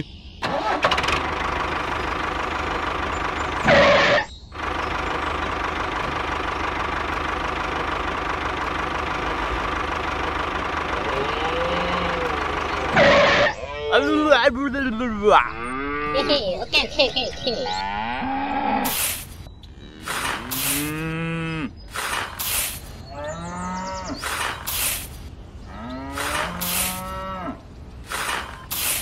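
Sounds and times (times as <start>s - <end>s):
cattle mooing: 10.9s - 19.0s, 19.8s - 21.8s, 23.1s - 24.2s, 25.7s - 27.6s
metal shovel scooping rice: 18.9s - 19.4s, 21.9s - 22.9s, 24.2s - 25.2s, 26.2s - 27.0s, 28.1s - 29.0s.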